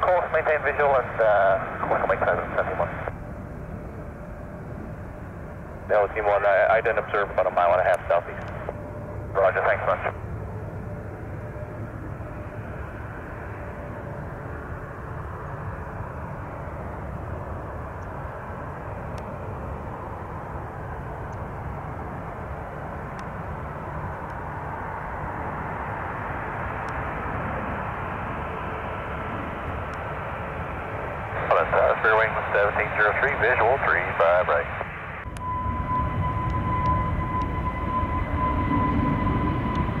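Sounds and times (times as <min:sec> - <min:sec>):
jet engines rumbling: 0:00.0 - 0:40.0.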